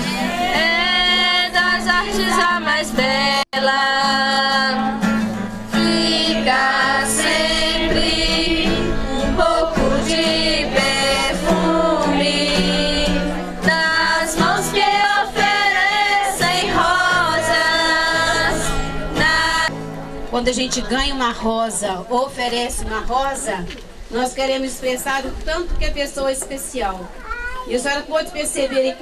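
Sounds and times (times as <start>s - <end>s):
song with singing voices: 0.0s - 19.8s.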